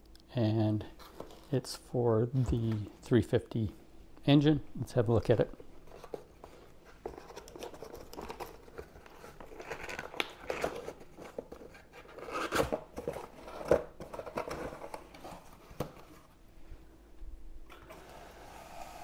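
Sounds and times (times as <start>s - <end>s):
packing tape peeling and tearing: 11.7s - 12.8s.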